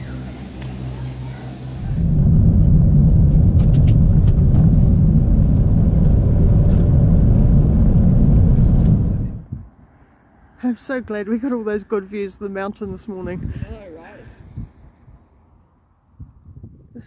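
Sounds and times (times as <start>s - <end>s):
car interior road rumble: 0.0s - 9.8s.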